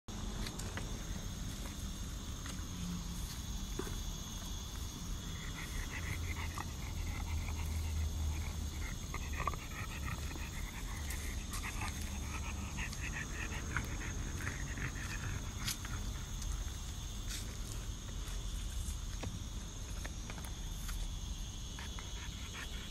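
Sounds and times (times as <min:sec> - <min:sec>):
dog chewing grass: 0:06.2 - 0:16.7.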